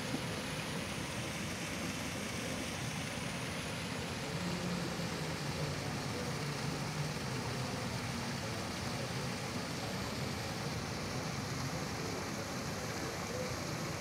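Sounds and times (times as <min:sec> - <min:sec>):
background hum and hiss: 0:00.0 - 0:14.0.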